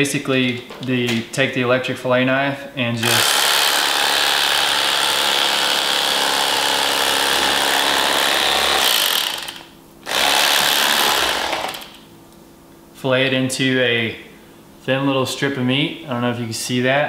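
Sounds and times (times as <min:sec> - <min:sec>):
electric knife buzzing: 0:03.0 - 0:12.0.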